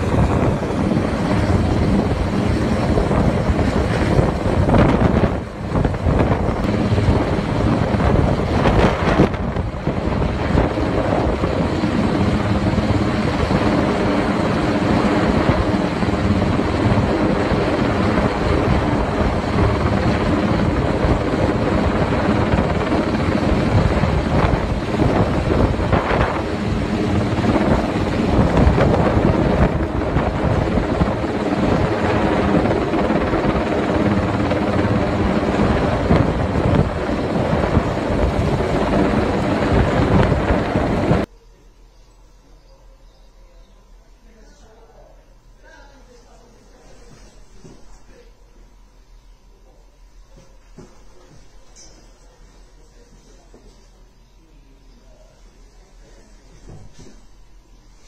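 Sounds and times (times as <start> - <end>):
helicopter rotor chopping: 0.0 - 41.3.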